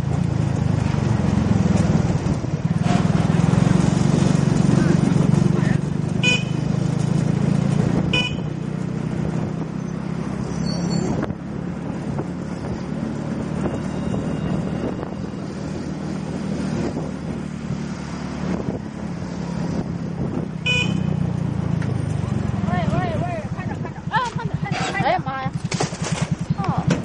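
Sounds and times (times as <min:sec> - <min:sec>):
motorcycle and road hum: 0:00.0 - 0:27.0
wind noise on microphone: 0:07.3 - 0:21.1.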